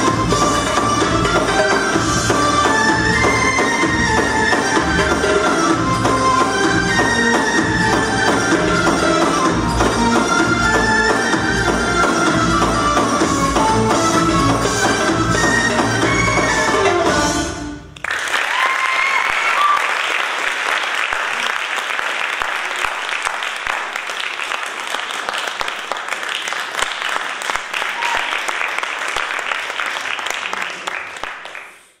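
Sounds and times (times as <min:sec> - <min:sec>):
dance music: 0:00.0 - 0:17.9
audience applauding: 0:18.0 - 0:32.0.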